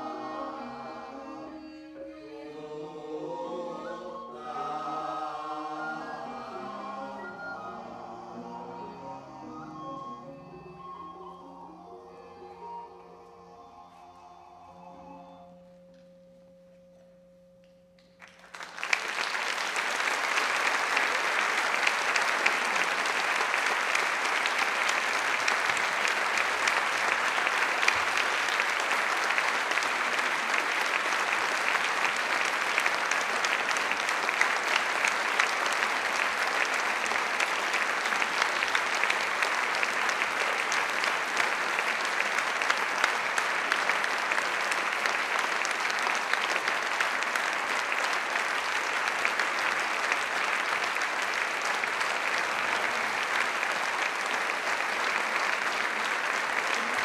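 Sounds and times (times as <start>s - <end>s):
audience applause: 18.2s - 57.0s.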